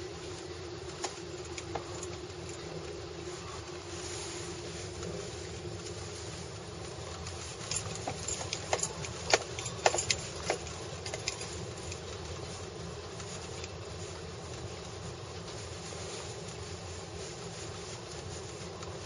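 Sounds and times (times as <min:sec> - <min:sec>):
low rumble inside a car: 0:00.0 - 0:19.0
sharp clicks and knocks: 0:07.2 - 0:12.0.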